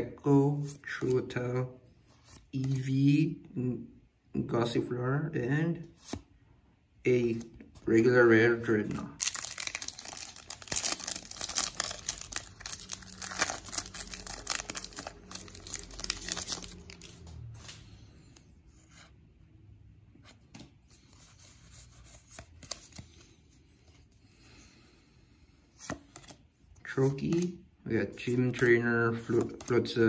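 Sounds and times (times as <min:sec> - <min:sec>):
cards rustling: 0:02.1 - 0:03.0, 0:07.2 - 0:18.4, 0:20.6 - 0:23.9, 0:25.8 - 0:26.4, 0:28.2 - 0:30.0
foil wrapper tearing and crinkling: 0:09.2 - 0:17.1.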